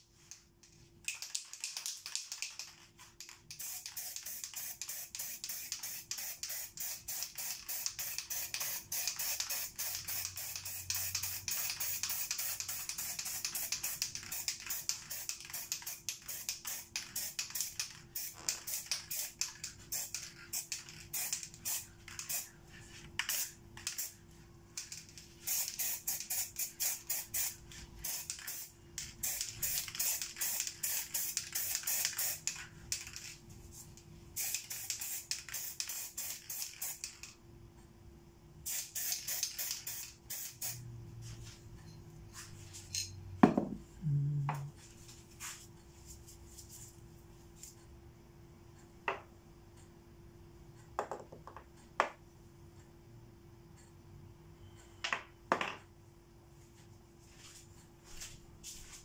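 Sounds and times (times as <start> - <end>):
spray paint can hissing: 1.1 - 22.5, 23.2 - 24.2, 24.8 - 33.3, 34.4 - 37.3, 38.6 - 40.8.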